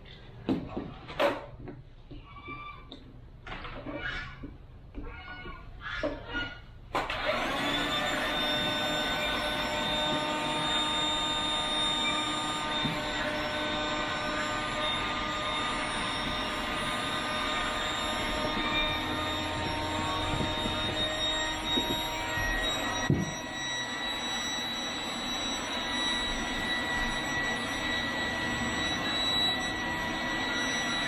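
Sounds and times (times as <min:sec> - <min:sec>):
electric air pump whining: 0:07.0 - 0:31.0.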